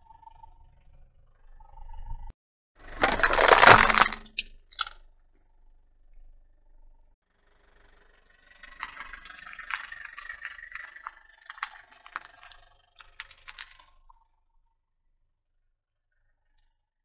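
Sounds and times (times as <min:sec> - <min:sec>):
tyre crushing plastic tubs: 0:02.9 - 0:04.9, 0:08.8 - 0:12.5, 0:13.1 - 0:13.7.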